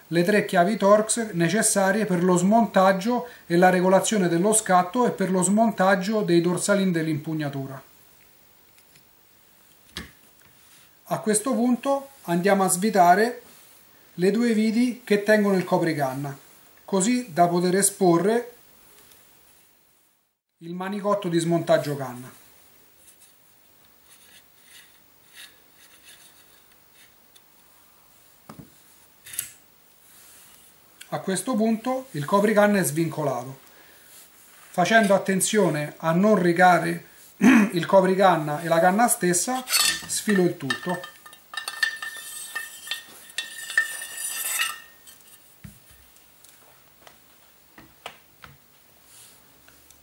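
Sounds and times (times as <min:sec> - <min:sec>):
metal handguard scraping and rattling: 0:39.6 - 0:45.5
faint metallic ring: 0:40.7 - 0:45.4.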